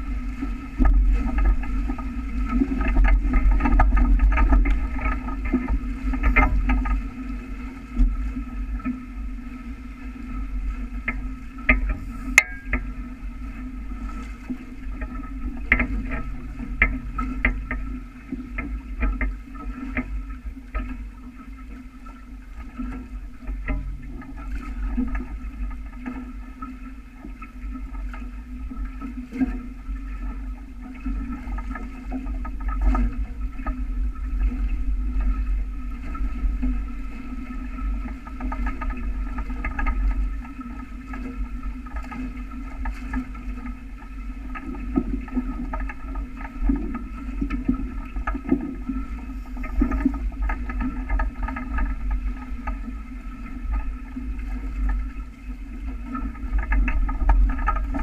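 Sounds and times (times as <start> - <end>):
water rushing along hulls: 0.0 - 58.0.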